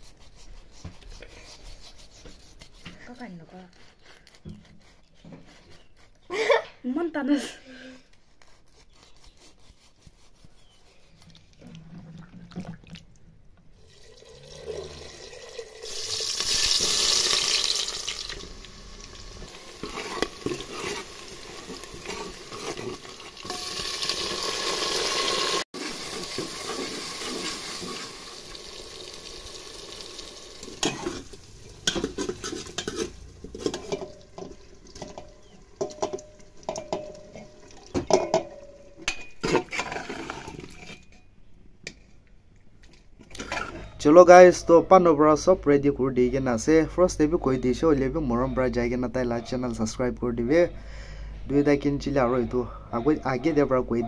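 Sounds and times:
food hissing in hot pot: 0:13.8 - 0:34.0
spoon clinking against pot: 0:30.8 - 0:39.7.

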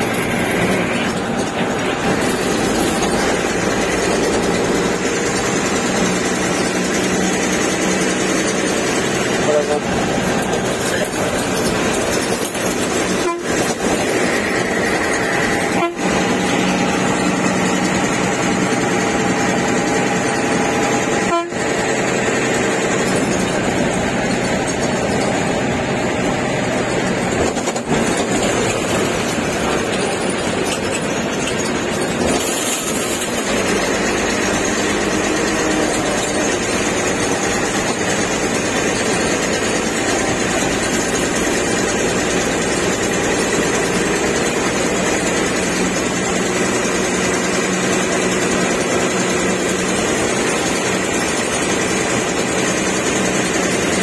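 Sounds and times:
bus engine and road noise: 0:00.0 - 0:54.0
cab rattling: 0:00.0 - 0:54.0
bus horn: 0:01.9 - 0:23.1.

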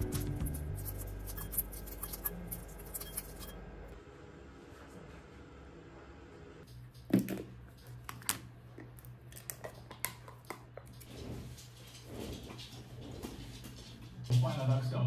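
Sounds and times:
metal spoon scraping tub: 0:00.4 - 0:03.6.

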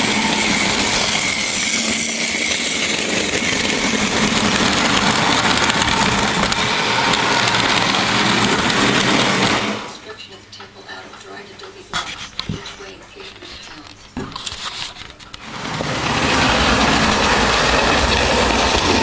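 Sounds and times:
wheels clattering over track: 0:00.0 - 0:09.9, 0:15.4 - 0:19.0.

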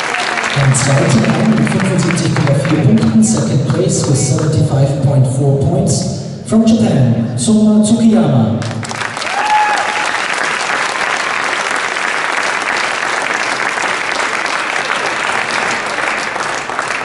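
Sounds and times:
crowd applauding: 0:00.0 - 0:04.6, 0:08.6 - 0:17.0.

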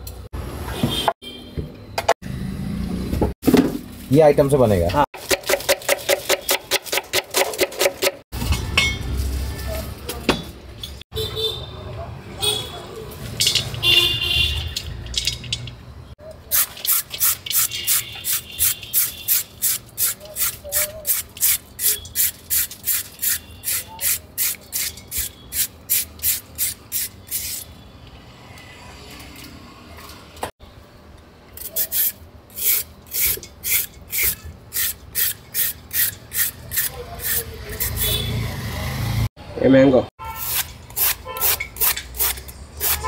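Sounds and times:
peeler rasping on cucumber: 0:31.6 - 0:38.2.

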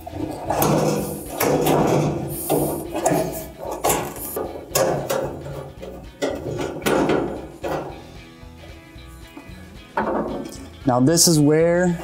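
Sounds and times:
sheet metal panels clattering: 0:00.0 - 0:08.1.

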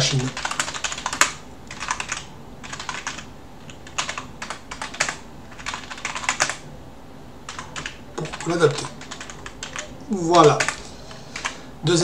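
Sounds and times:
computer keyboard typing: 0:00.0 - 0:06.6, 0:07.5 - 0:11.6.

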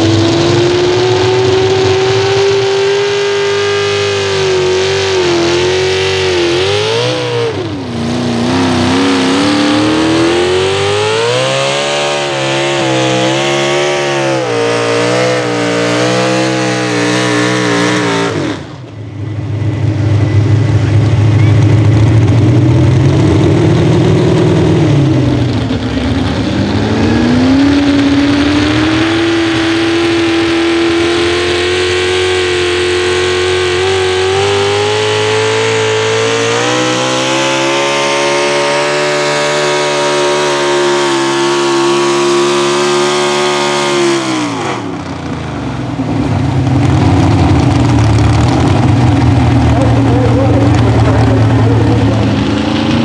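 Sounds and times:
truck engine revving at full throttle: 0:00.0 - 0:53.0.

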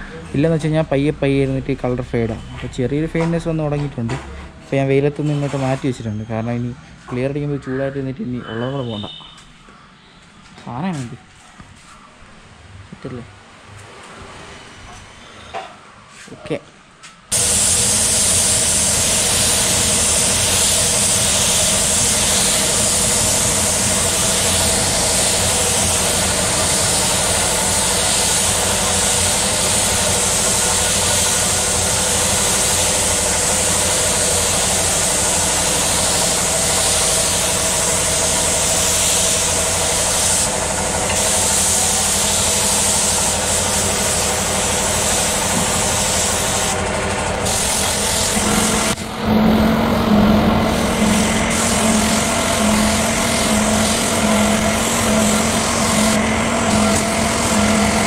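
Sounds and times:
mechanical hum: 0:00.0 - 0:58.0
spray gun hissing: 0:17.3 - 0:49.0, 0:49.7 - 0:58.0.

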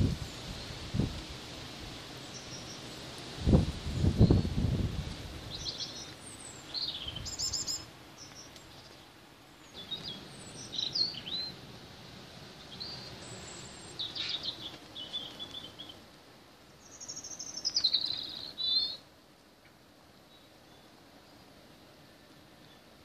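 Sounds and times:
rain: 0:00.0 - 0:16.9
wind: 0:00.0 - 0:23.0
small birds chirping: 0:02.1 - 0:03.1, 0:03.8 - 0:11.8, 0:12.5 - 0:16.1, 0:16.7 - 0:21.6.

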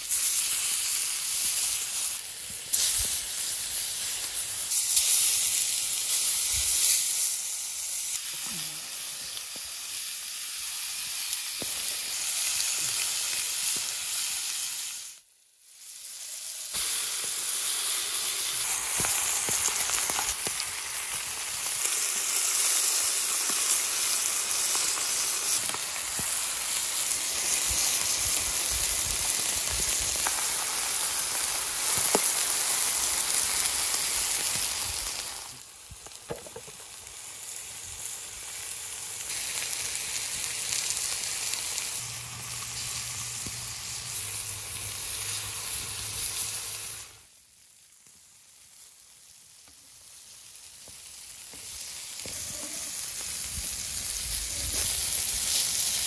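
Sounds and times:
food sizzling on hot stone: 0:00.0 - 0:56.0.

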